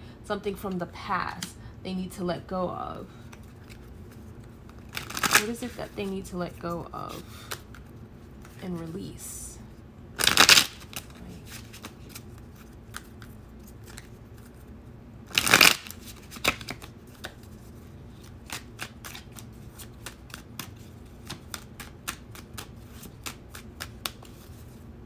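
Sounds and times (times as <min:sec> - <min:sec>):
cards riffling: 0:03.2 - 0:05.8, 0:10.2 - 0:14.6, 0:15.3 - 0:24.7
card clicks and slaps: 0:15.3 - 0:17.4, 0:18.4 - 0:24.4.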